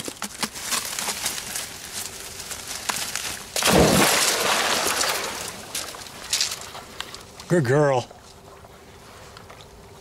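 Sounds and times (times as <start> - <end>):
dog splashing into water: 3.6 - 6.0
water churning: 3.6 - 6.2.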